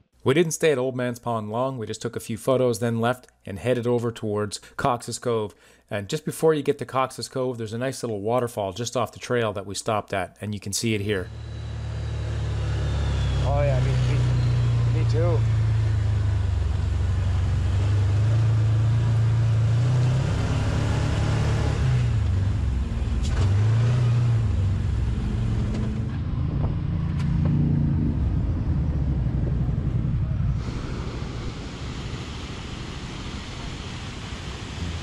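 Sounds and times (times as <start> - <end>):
vehicle engine running on gravel: 11.1 - 29.6
waterfall rushing: 30.6 - 35.0.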